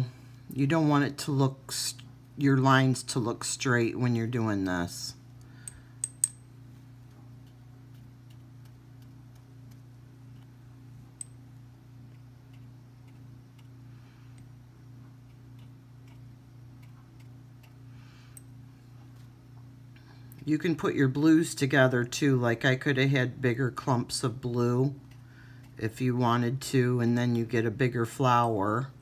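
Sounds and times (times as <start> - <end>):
steady low hum: 0.0 - 29.0
faint even ticking: 7.0 - 18.5.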